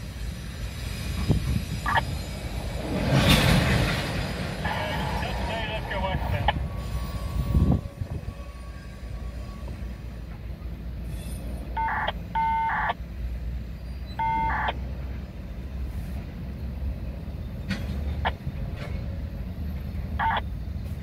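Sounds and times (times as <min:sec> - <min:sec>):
low rumble: 0:00.8 - 0:08.7.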